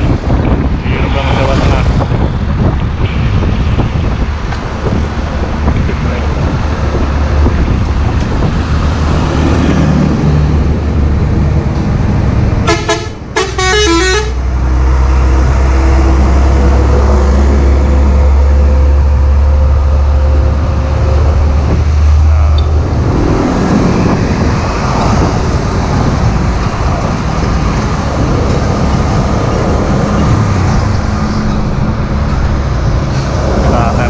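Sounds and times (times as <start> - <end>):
large vehicle rumbling past: 0.0 - 34.0
trucks passing on highway: 0.0 - 34.0
truck horn: 12.6 - 14.5.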